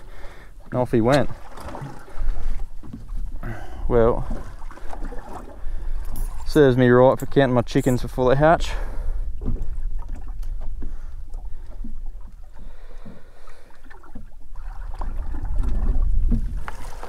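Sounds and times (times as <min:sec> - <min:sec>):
water slapping against boat hull: 0:00.6 - 0:03.4, 0:04.0 - 0:08.1, 0:09.4 - 0:17.0
wind rumble on microphone: 0:14.2 - 0:17.0.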